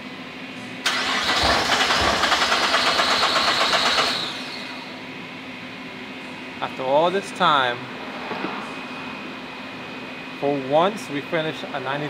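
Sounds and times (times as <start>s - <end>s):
car engine cranking on starter: 0.8s - 4.7s.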